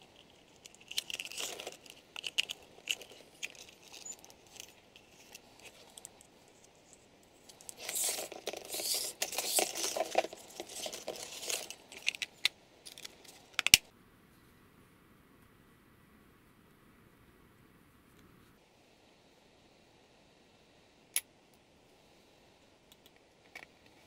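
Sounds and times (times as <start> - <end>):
rustling and scraping of wires: 0.0 - 13.8
sharp plastic clicks: 12.0 - 13.9.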